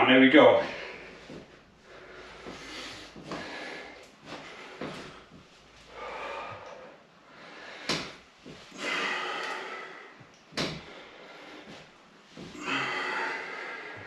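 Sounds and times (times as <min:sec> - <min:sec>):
man exhaling forcefully: 0:07.6 - 0:11.0, 0:12.4 - 0:14.0.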